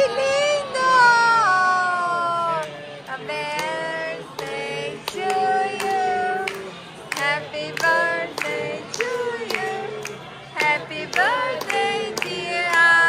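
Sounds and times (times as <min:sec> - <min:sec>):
voices singing birthday song: 0:00.0 - 0:13.0
hand claps: 0:03.5 - 0:13.0.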